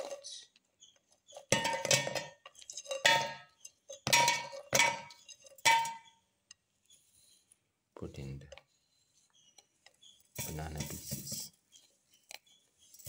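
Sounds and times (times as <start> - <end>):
biscuits clanging into metal jar: 1.4 - 6.2.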